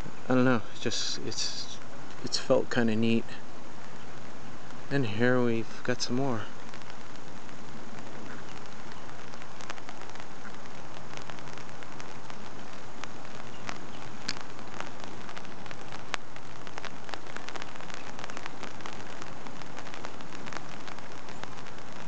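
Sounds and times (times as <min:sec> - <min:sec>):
rain falling on pond: 0:00.0 - 0:22.0
raindrops ticking: 0:00.0 - 0:22.0.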